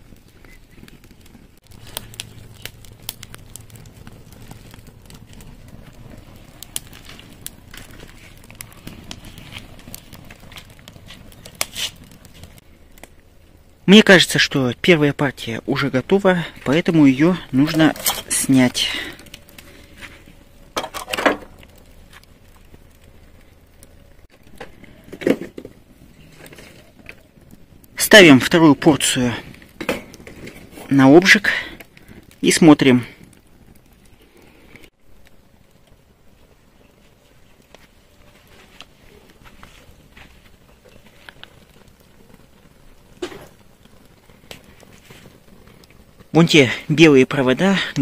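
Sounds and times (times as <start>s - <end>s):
wood fire crackling and popping: 0.0s - 48.0s
low steady rumble: 1.4s - 11.5s.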